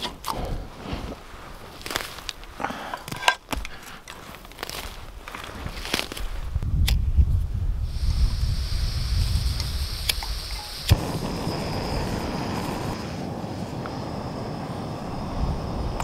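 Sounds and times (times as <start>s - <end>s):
steady rush of flame: 6.4s - 16.0s
gas hissing from valve: 7.8s - 16.0s
burner igniting with a pop: 7.9s - 16.0s.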